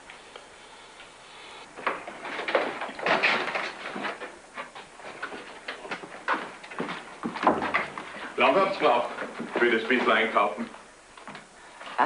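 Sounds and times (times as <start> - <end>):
footsteps on hard floor: 3.8 - 8.4.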